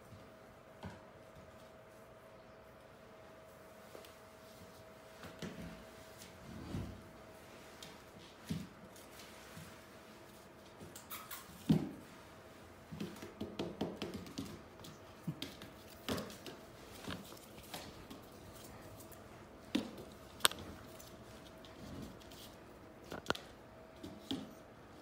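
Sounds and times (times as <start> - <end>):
faint steady hum: 0.0 - 25.0
paws and toys tapping on tile: 12.9 - 18.7.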